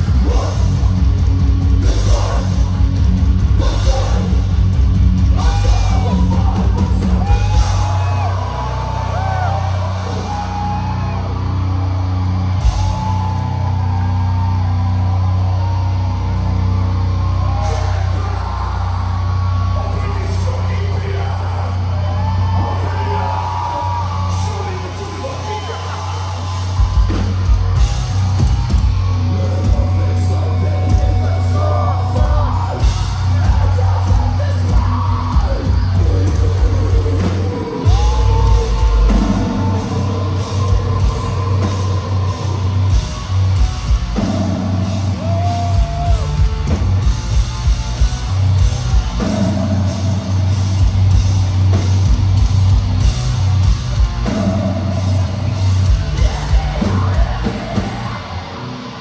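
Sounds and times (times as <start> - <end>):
vocalist singing and yelling: 0.0 - 11.6, 17.4 - 28.4, 29.0 - 47.1, 54.0 - 59.0
drums: 0.0 - 59.0
heavy distorted guitars and bass: 0.0 - 59.0.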